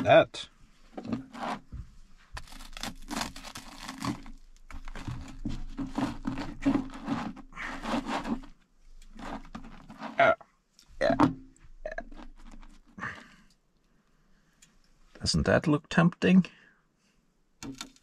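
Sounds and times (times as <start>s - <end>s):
plastic bag crinkling: 2.4s - 8.5s.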